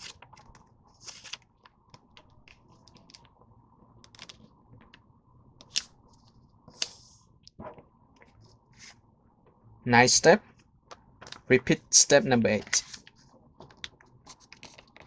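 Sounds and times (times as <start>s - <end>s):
paper rustling and crinkling: 0.0s - 3.2s, 12.5s - 15.0s.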